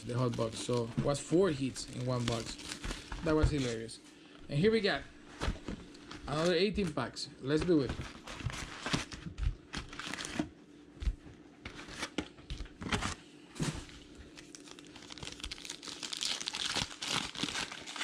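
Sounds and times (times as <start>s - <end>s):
foil packs rustling and crinkling: 0.0s - 3.9s, 5.4s - 10.5s, 13.8s - 18.0s
wrapper tearing open: 1.8s - 3.3s, 8.2s - 10.4s, 14.4s - 18.0s.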